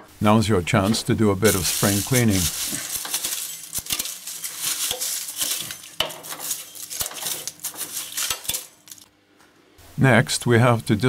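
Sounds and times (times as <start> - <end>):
leaves scraped by hand: 0.9 - 9.0.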